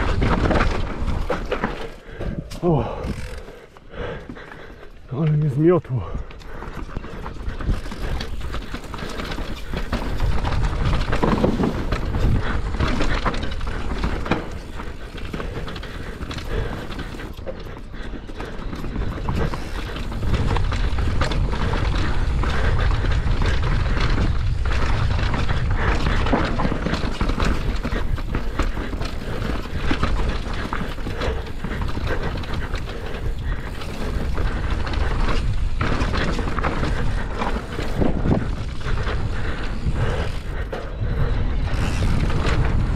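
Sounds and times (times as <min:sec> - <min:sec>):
bike chain and frame rattling: 0:00.0 - 0:04.8, 0:05.9 - 0:42.9
wind rushing over microphone: 0:19.0 - 0:42.9.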